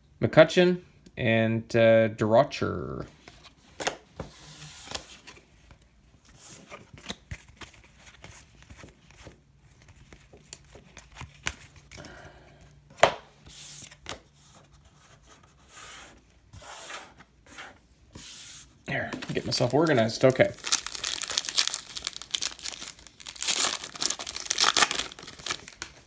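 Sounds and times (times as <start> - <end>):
cards rubbing and rustling: 3.1 - 5.4, 6.3 - 12.1, 13.4 - 26.0.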